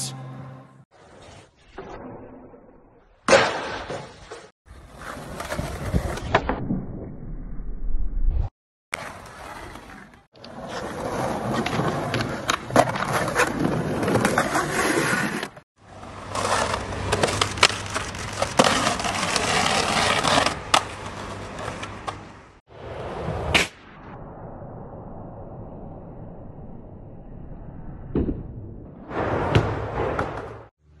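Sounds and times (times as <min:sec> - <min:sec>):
skateboard pops and landings: 0:03.2 - 0:07.2, 0:28.1 - 0:30.7
skateboard wheels rolling on concrete: 0:03.3 - 0:06.6, 0:08.9 - 0:23.7.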